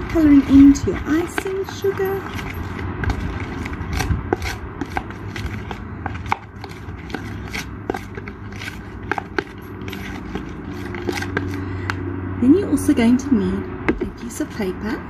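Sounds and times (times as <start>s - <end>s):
spoon scraping plastic tub: 0.0s - 12.0s.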